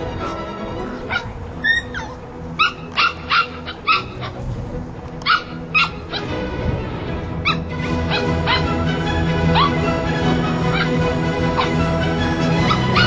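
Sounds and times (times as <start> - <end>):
puppies yapping and barking: 0.9 - 4.6, 5.2 - 6.5, 7.4 - 13.0.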